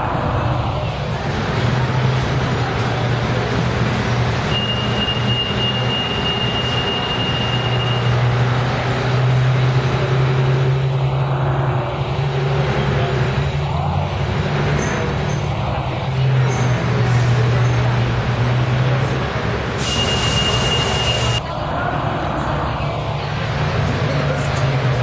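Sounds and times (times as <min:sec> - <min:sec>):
bus diesel engine running: 0:00.0 - 0:25.0
thin high whistle: 0:19.8 - 0:21.4.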